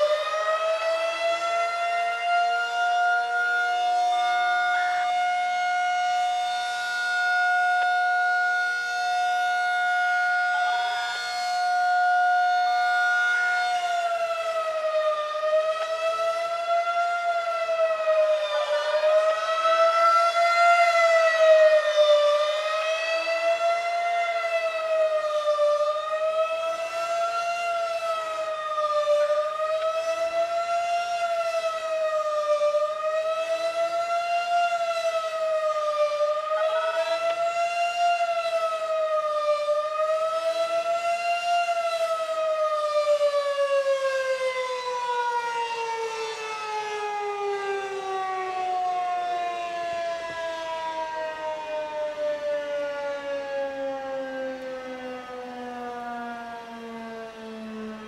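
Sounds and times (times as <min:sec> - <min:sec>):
rotating tornado siren: 0:00.0 - 0:58.0.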